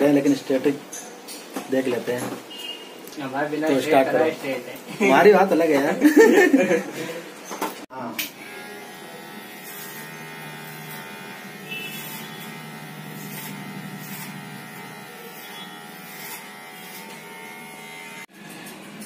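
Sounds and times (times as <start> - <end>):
electric hair clipper buzzing: 8.2 - 18.8.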